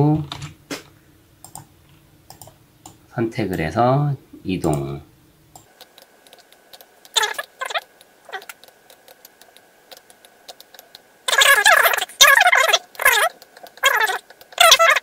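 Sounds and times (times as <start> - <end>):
computer mouse clicks: 1.4 - 1.7, 2.3 - 3.6, 5.6 - 12.1, 12.9 - 14.7
high-pitched sliding cries: 7.2 - 8.5, 11.3 - 15.0.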